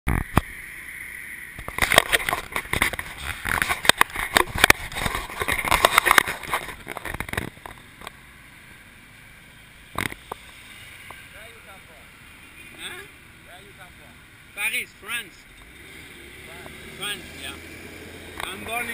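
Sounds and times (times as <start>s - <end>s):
passing street traffic: 0.1s - 18.9s
microphone handling knocks and scrapes: 1.6s - 7.9s.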